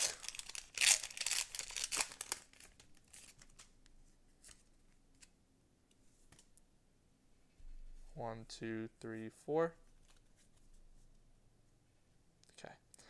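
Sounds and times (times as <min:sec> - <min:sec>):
cards clicking and rustling: 0:00.0 - 0:03.7
foil wrapper crinkling and tearing: 0:00.0 - 0:03.7.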